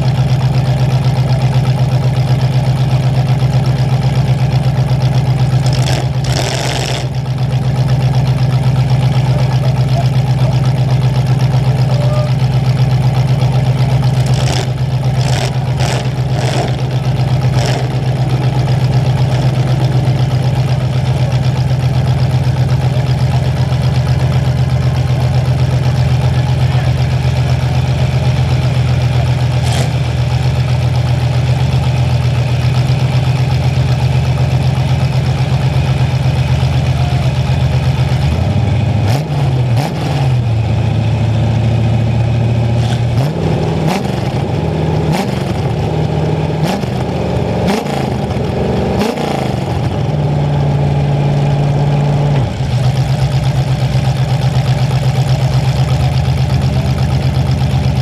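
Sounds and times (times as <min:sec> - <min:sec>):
car engine revving through open exhaust: 0:05.4 - 0:07.2, 0:14.2 - 0:19.8, 0:38.2 - 0:53.2.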